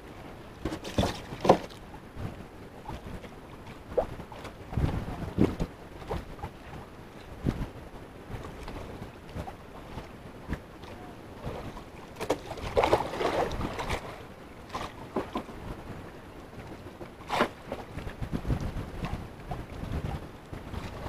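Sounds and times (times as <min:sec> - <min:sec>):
sea water against wooden boat: 0:00.0 - 0:21.0
wind on microphone: 0:00.0 - 0:21.0
water splashes: 0:10.5 - 0:15.6.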